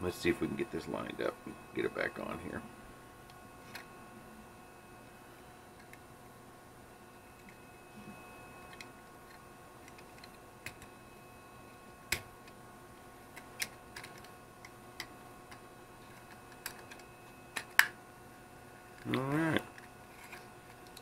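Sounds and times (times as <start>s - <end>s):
plastic parts clicking: 13.4s - 17.9s.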